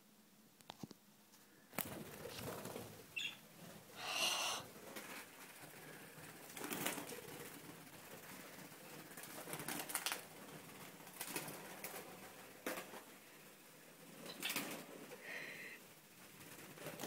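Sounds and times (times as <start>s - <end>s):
bird wings flapping: 1.7s - 3.9s, 4.8s - 13.2s, 14.0s - 15.2s, 16.2s - 17.0s.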